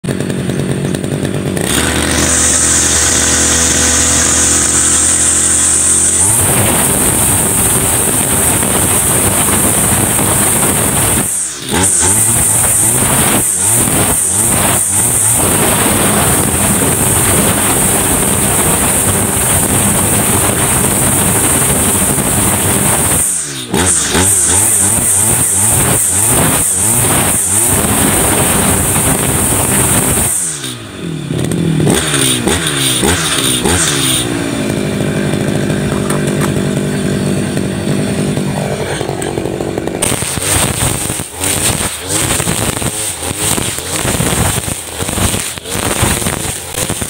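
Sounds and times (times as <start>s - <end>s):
brush cutter engine revving: 0.0s - 47.0s.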